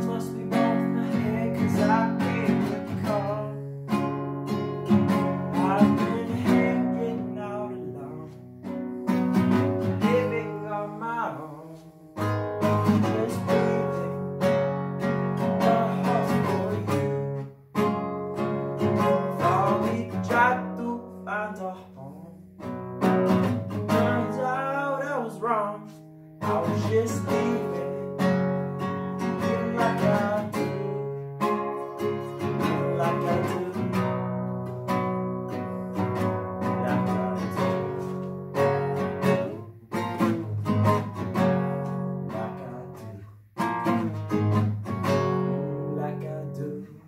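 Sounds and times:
classical guitar chords: 0.0 - 47.0
man singing: 0.0 - 47.0.

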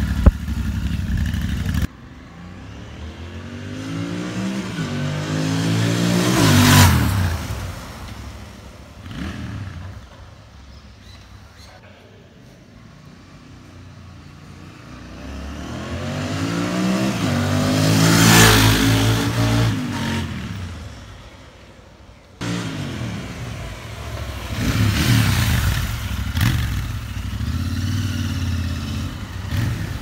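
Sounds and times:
motorcycle engine passing by: 22.4 - 30.0.

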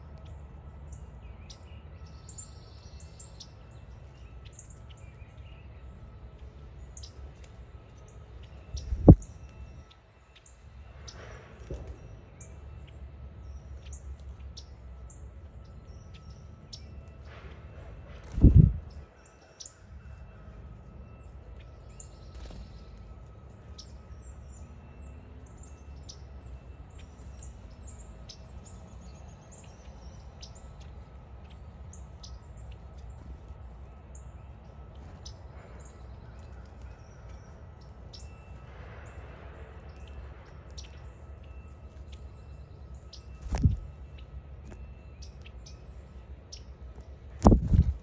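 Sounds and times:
birds chirping: 0.0 - 48.0
low rumble: 8.7 - 9.9, 17.6 - 19.1, 46.0 - 48.0.

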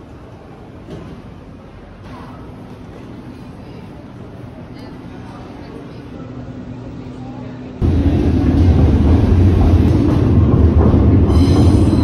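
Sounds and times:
train rumbling over viaduct: 0.0 - 12.0
wheels squealing on rails: 10.8 - 12.0.

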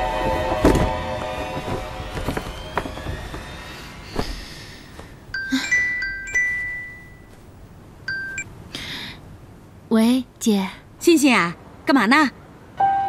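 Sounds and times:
background music: 0.0 - 4.8
phone ringtone chimes: 5.4 - 7.3, 8.1 - 8.4.

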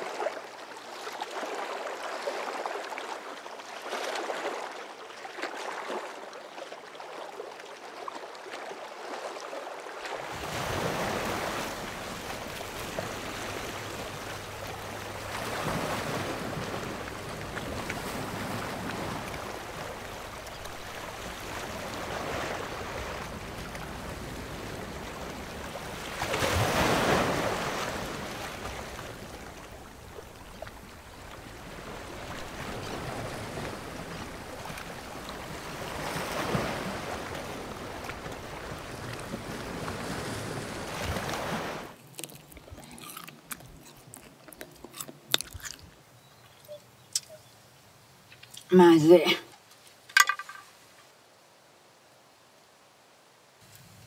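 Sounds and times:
waves washing on rocky shore: 10.2 - 42.0.

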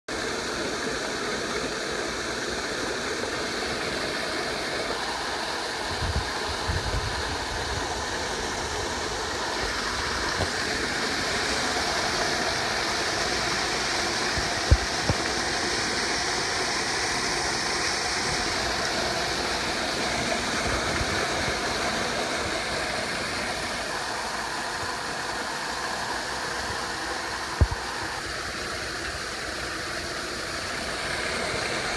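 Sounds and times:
rainwater rushing into a drain: 0.1 - 31.9.

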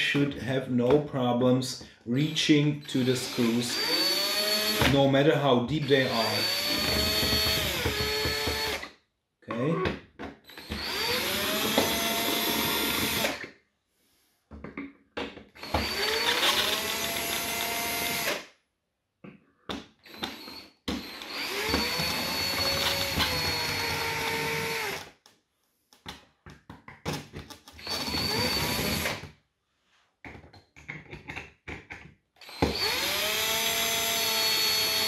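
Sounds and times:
cordless drill whining: 2.9 - 5.0, 5.8 - 8.9, 10.4 - 13.5, 15.6 - 18.5, 20.0 - 25.2, 27.8 - 29.3, 32.4 - 35.0.

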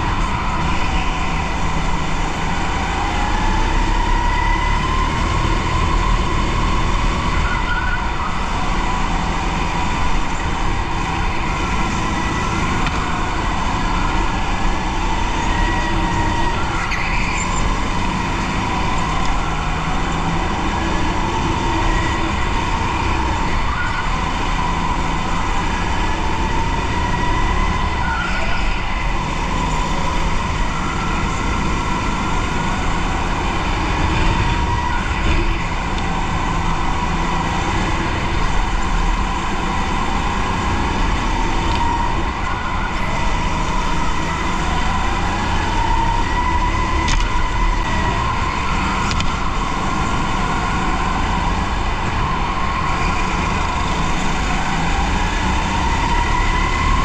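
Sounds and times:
go-kart engine whine: 0.0 - 57.0.

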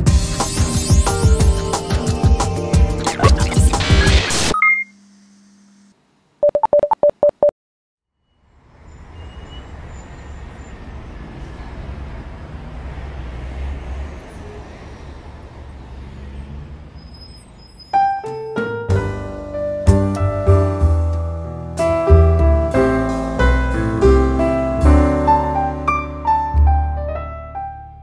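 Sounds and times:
piano music: 0.0 - 3.9, 18.1 - 28.0
quick electronic beeps: 3.0 - 5.0, 6.4 - 7.5.

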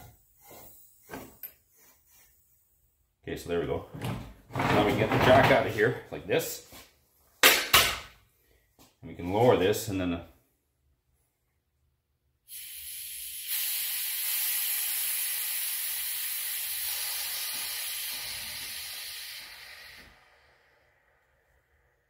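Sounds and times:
air escaping hiss: 12.4 - 21.7.

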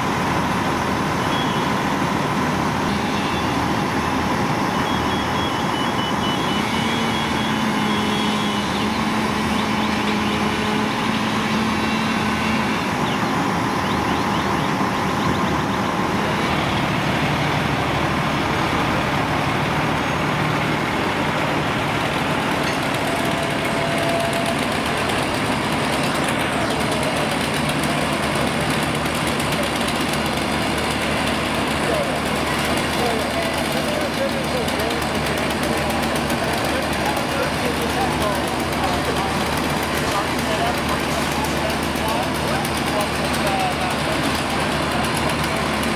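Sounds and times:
fire truck engine running: 0.0 - 45.9
short high beeps: 4.8 - 8.8.

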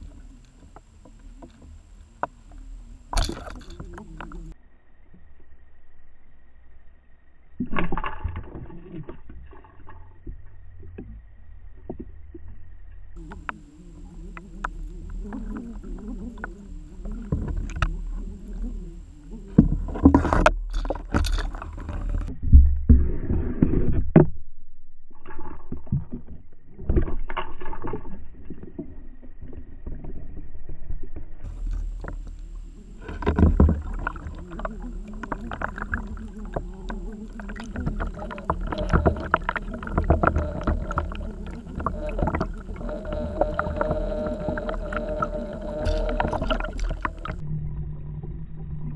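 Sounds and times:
underwater clicks and knocks: 0.0 - 4.6, 13.2 - 24.4, 25.2 - 47.4
underwater rumble of moving water: 0.0 - 48.9.

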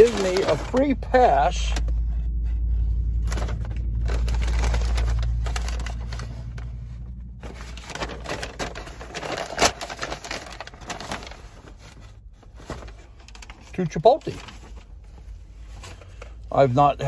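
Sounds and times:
sharp paper crackles: 0.0 - 1.9, 3.2 - 15.1
handling noise rumble: 0.0 - 13.2
paper bag rustling and crinkling: 0.0 - 17.0.

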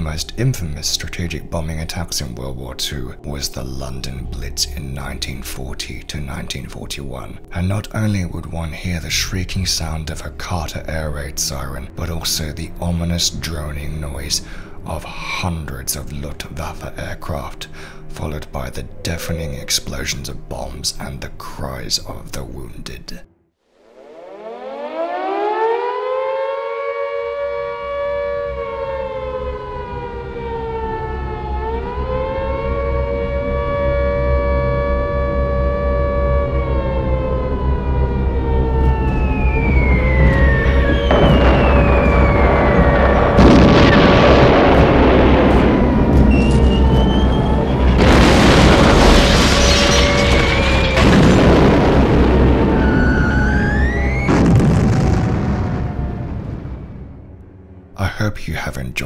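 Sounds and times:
air-raid siren wailing: 0.0 - 20.8, 23.6 - 58.0
low rumble: 29.2 - 58.1.

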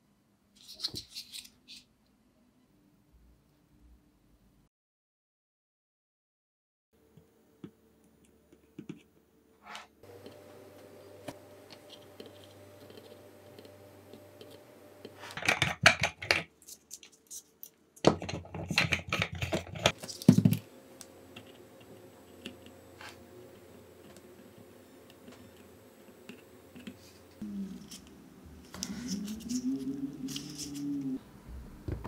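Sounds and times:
faint steady hum: 7.0 - 32.0.

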